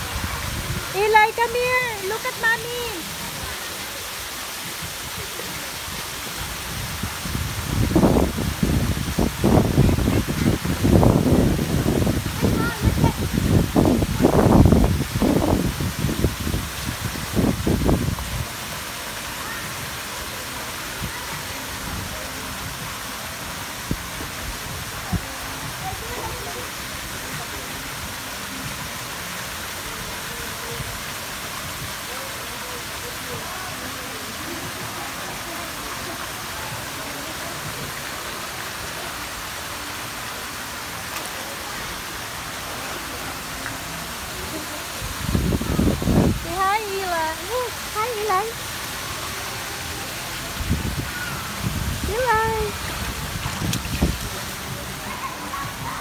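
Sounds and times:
waterfall rushing hiss: 0.0s - 56.0s.

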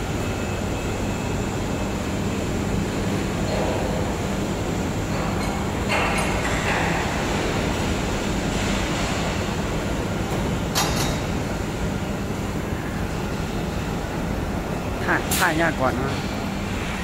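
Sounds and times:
factory machinery rumbling: 0.0s - 17.0s.

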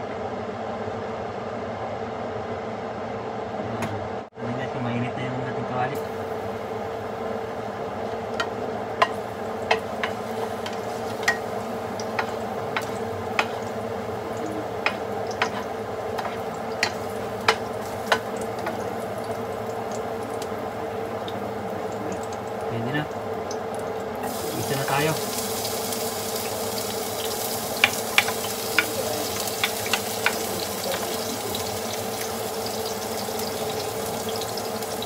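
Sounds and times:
steady low hum: 0.0s - 35.0s
oil sizzling in a frying pan: 6.0s - 35.0s.

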